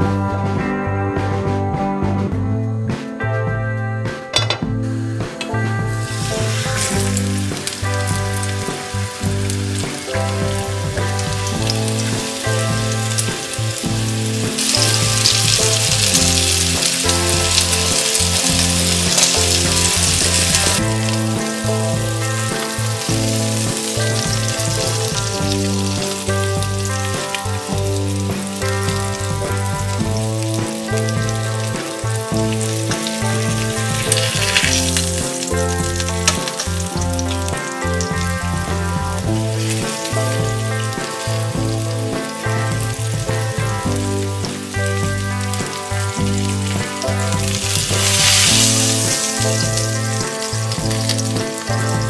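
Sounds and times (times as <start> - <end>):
background music: 0.0 - 52.0
meat sizzling in a frying pan: 5.4 - 52.0.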